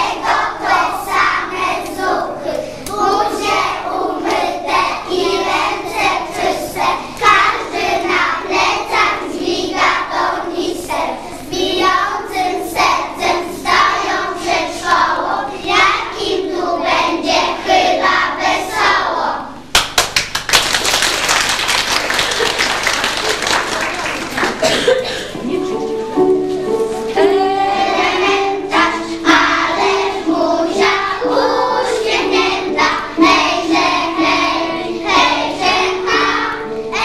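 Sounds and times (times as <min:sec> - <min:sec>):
children singing together: 0:00.0 - 0:19.6, 0:25.8 - 0:37.0
people clapping: 0:19.7 - 0:25.0.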